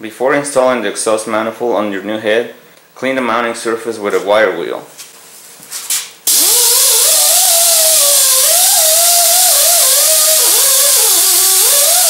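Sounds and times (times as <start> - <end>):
air-powered wire wheel whine: 6.3 - 12.0.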